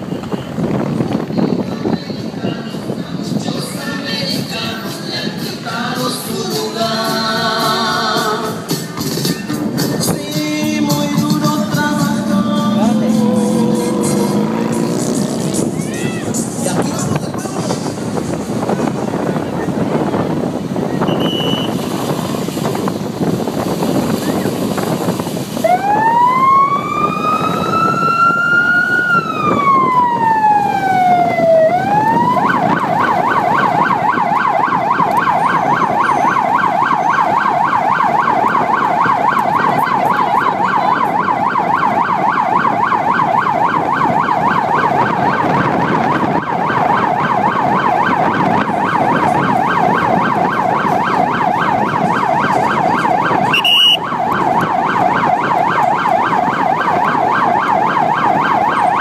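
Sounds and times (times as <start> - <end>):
vehicle rumble: 0.0 - 59.0
siren wailing and yelping: 25.6 - 59.0.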